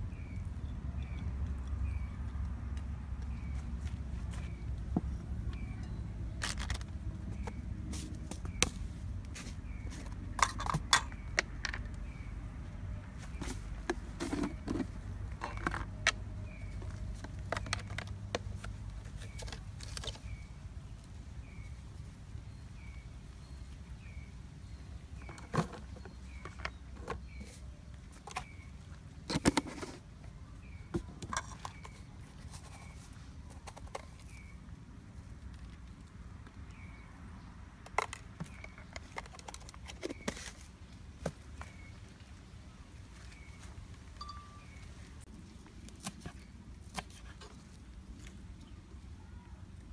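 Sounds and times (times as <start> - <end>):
faint high chirp: 5.5 - 6.2, 43.3 - 45.1
plastic containers clicking: 13.4 - 20.4, 37.8 - 41.8.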